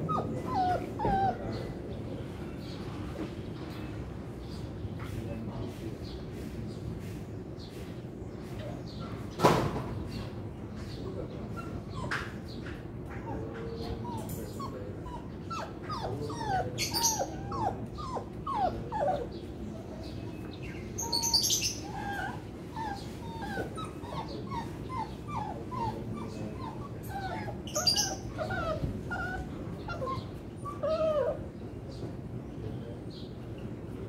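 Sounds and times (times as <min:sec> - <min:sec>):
dogs whining and whimpering: 0:00.0 - 0:02.0, 0:11.5 - 0:12.5, 0:13.1 - 0:19.4, 0:21.0 - 0:31.6.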